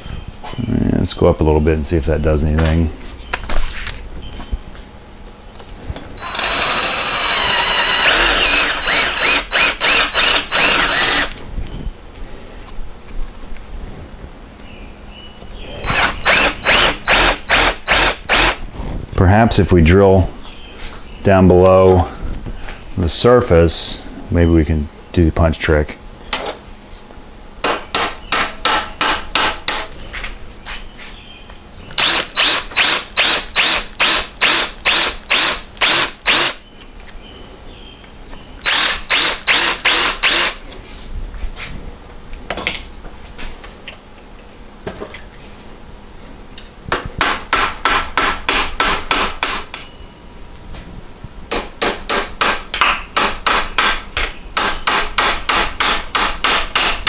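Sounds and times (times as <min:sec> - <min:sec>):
hammer striking pin punch: 0:46.9 - 0:49.9, 0:51.5 - 0:57.0.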